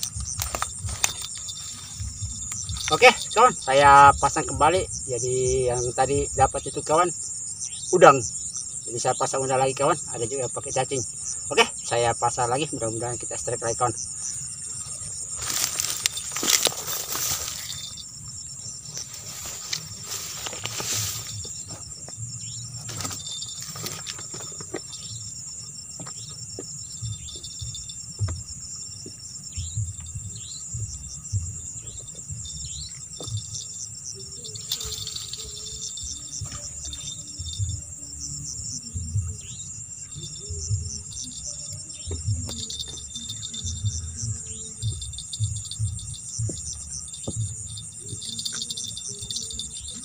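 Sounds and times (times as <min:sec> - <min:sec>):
low irregular pulsing beat: 0:00.0 - 0:06.6, 0:24.9 - 0:50.0
crickets trilling: 0:00.0 - 0:50.0.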